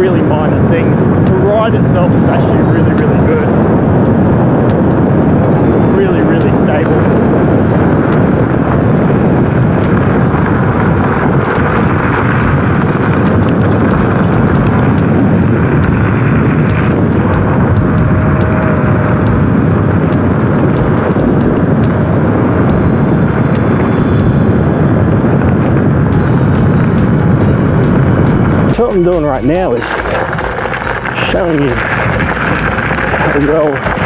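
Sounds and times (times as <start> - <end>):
wind rushing over microphone: 0.0 - 34.0
scooter tyres on gravel: 6.9 - 23.5, 26.4 - 34.0.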